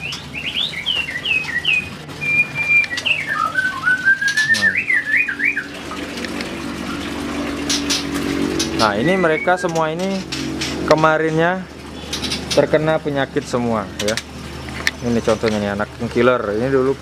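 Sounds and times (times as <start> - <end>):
songbird whistling: 0.0 - 5.8, 8.8 - 9.8
low steady hum: 0.0 - 17.0.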